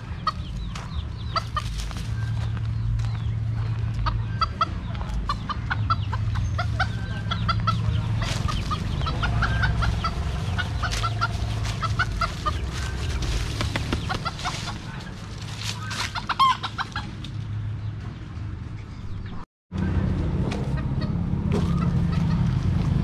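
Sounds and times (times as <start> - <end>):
rooster clucking: 0.0 - 2.3, 3.8 - 17.4, 20.5 - 22.8
footsteps on dry leaves: 0.0 - 17.4.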